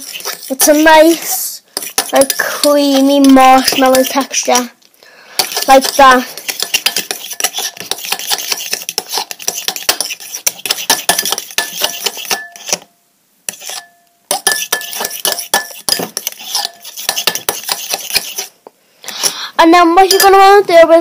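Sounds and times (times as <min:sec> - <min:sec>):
utensil scraping glass bowl: 0:00.0 - 0:04.7, 0:05.4 - 0:12.9, 0:13.5 - 0:18.6, 0:20.0 - 0:20.4.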